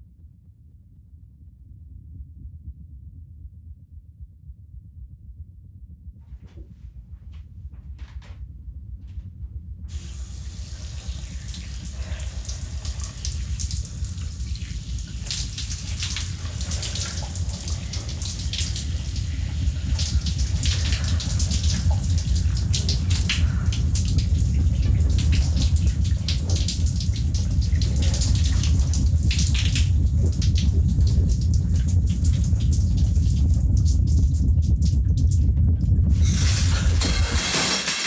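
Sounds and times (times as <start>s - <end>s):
deep low rumble: 0.0s - 38.0s
shower water spraying: 9.9s - 33.2s, 36.1s - 38.0s.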